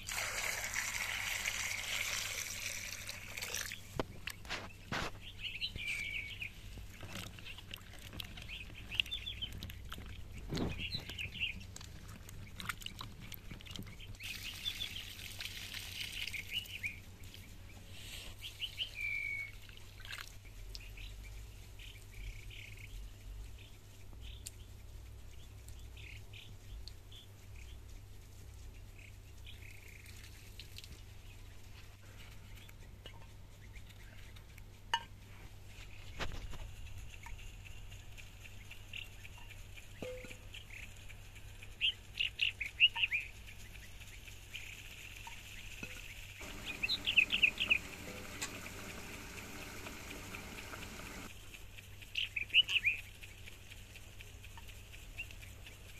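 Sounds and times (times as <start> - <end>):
water pouring onto rice: 0.0 - 4.0, 14.2 - 16.6, 46.4 - 51.3
small birds chirping: 1.1 - 55.9.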